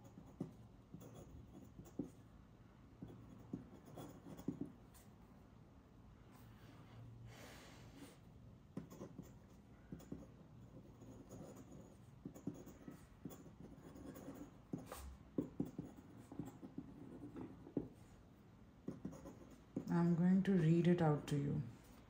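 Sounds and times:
pen nib scratching paper: 0.0s - 2.2s, 3.0s - 4.8s, 8.7s - 18.0s, 18.8s - 20.5s.

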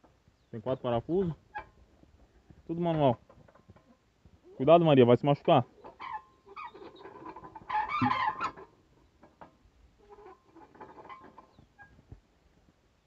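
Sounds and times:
chickens clucking: 5.6s - 9.4s.

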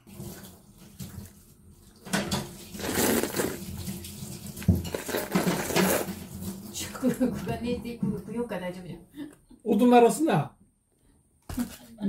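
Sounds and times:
wet slurping and chewing: 2.8s - 6.5s.

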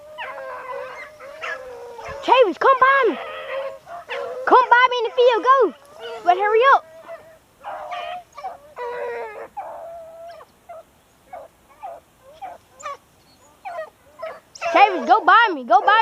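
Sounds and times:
dogs baying and yelping: 0.0s - 16.0s.

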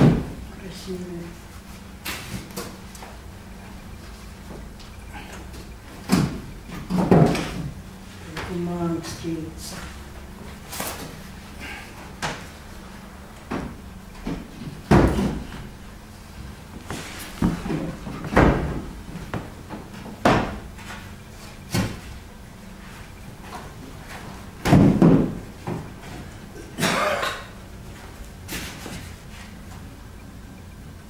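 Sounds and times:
wooden frames knocking and bumping: 0.0s - 0.4s, 5.6s - 9.2s, 13.4s - 15.7s, 16.8s - 22.1s, 23.3s - 26.4s.

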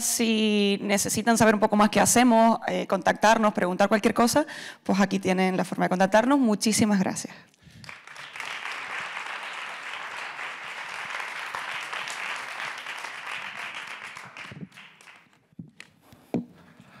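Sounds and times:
audience applauding: 7.8s - 15.5s.

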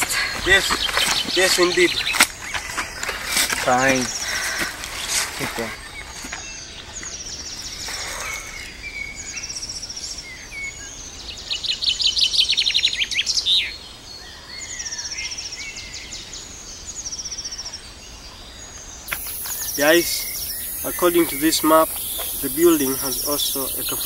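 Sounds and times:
birds singing trills: 0.0s - 24.0s.

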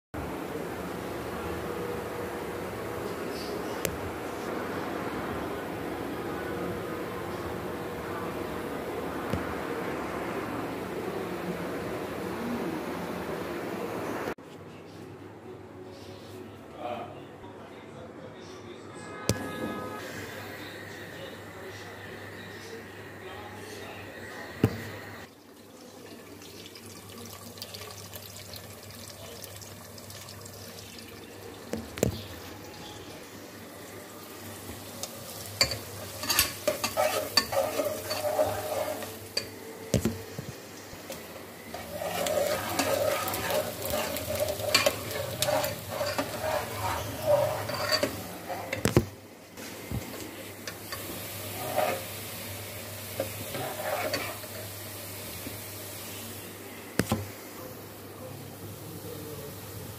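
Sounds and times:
onions sizzling in a pot: 24.5s - 49.0s, 49.6s - 56.7s, 57.3s - 59.9s
metal spatula scraping a pot: 35.6s - 39.5s, 41.7s - 48.9s, 50.9s - 52.2s, 53.2s - 54.7s.

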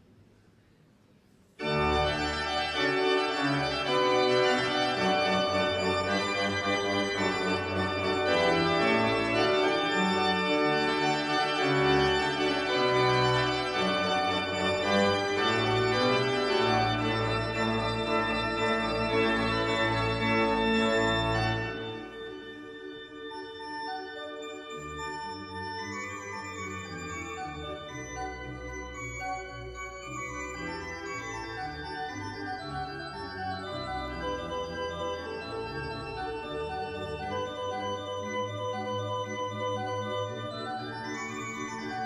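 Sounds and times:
organ music: 1.6s - 42.0s.

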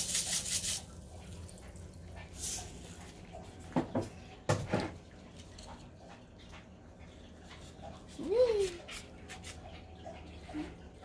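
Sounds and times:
sprinkles rattling in shaker jar: 0.0s - 1.0s.

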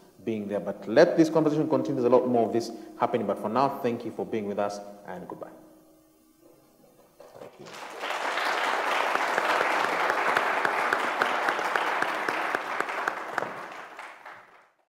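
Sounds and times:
audience applause: 7.4s - 14.8s.

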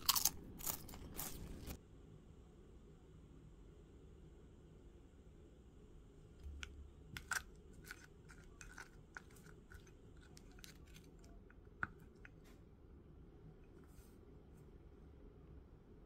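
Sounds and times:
crunching: 0.0s - 1.8s, 6.4s - 12.3s
spoon scraping ceramic bowl: 7.2s - 11.3s.

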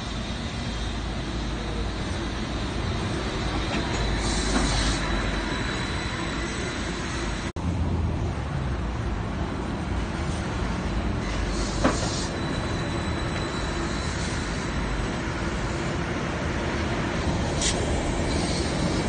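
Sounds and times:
trolleybus motor and tyre hum: 0.0s - 19.0s
trolleybus passing with low rumble: 0.0s - 19.0s
thin high whine: 11.2s - 16.1s.

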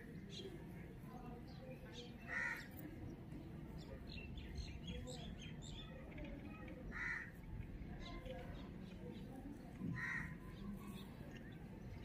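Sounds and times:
small birds chirping: 0.0s - 12.0s
crow cawing: 2.3s - 2.7s, 6.9s - 7.3s, 10.0s - 10.4s.

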